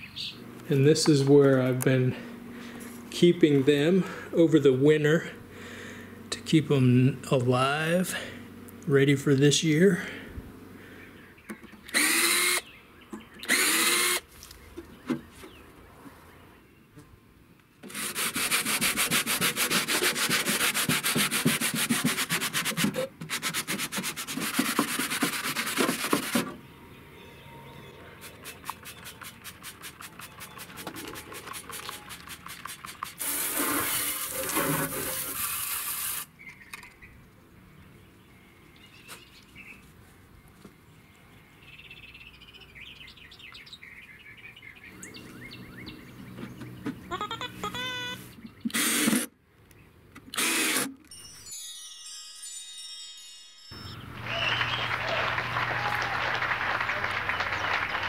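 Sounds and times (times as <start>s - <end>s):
sanding paint on metal: 17.9s - 26.5s, 28.2s - 36.2s
spray bottle squirts: 28.2s - 36.3s
loud hissing: 33.1s - 36.3s.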